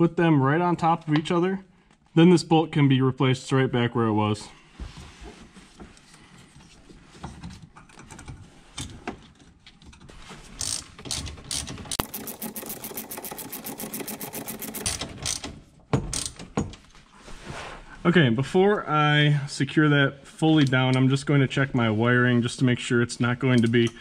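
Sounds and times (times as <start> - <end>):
ratchet wrench clicking: 10.6 - 15.5.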